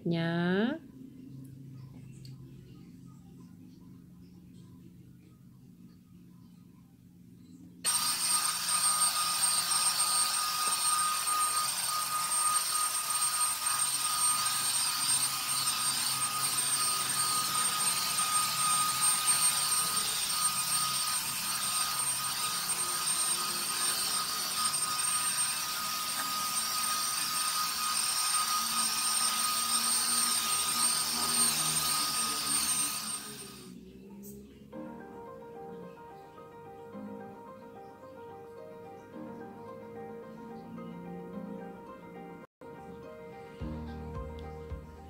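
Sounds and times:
vacuum cleaner motor whine: 7.8 - 33.9.

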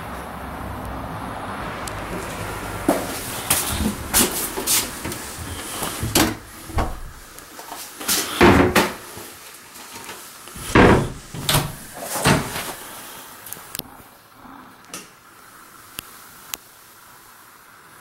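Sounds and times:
wooden doors opening and closing: 2.0 - 9.0, 10.6 - 12.9.

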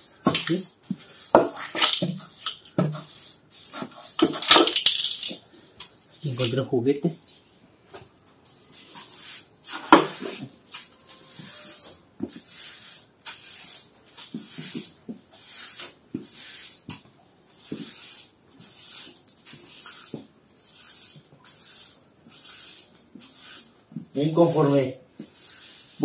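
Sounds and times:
broom scraping concrete floor: 0.0 - 6.7, 7.3 - 16.9, 17.5 - 26.0.

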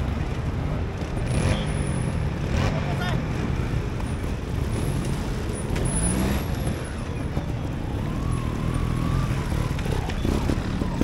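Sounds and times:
motorcycle engine revving: 0.8 - 3.4.

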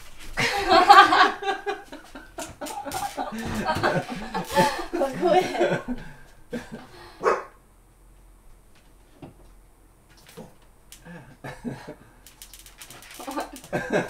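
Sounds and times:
small ticks: 10.2 - 11.1, 12.2 - 13.8.

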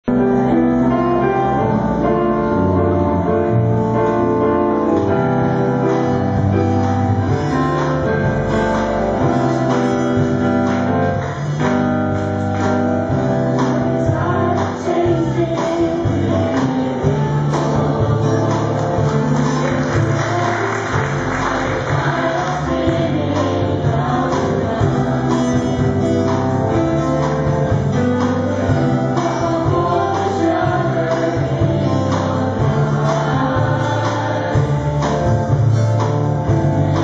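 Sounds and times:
band with guitar and drums: 0.0 - 37.0
group singing gospel song: 12.3 - 37.0.

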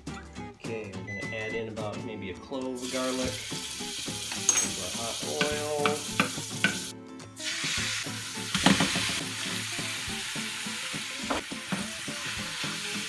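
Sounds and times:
oil sizzling in a frying pan: 2.8 - 13.0.

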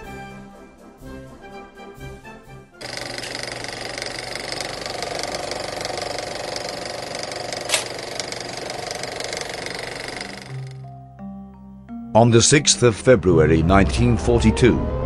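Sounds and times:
piston aircraft engine running: 2.8 - 10.8.

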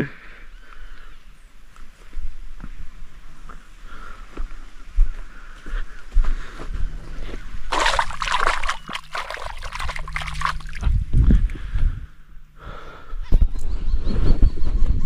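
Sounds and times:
feet splashing through muddy water: 7.7 - 11.0.

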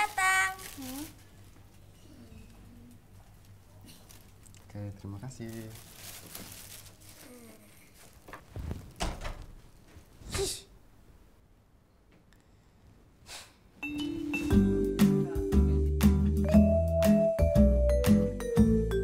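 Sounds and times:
rustling: 0.0 - 10.3
girl huffing: 10.2 - 10.8, 13.2 - 13.7
background music: 13.8 - 19.0.

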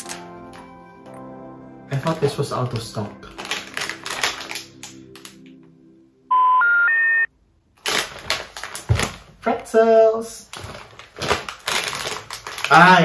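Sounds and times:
plastic snack packet crinkling: 2.0 - 5.6, 7.8 - 9.7, 10.4 - 13.0
rising electronic beeps: 6.3 - 7.3.

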